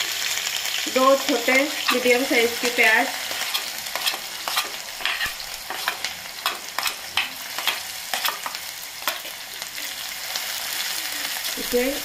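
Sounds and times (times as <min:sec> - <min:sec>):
onions sizzling in hot oil: 0:00.0 - 0:12.0
metal spoon scraping steel plate: 0:03.3 - 0:09.3.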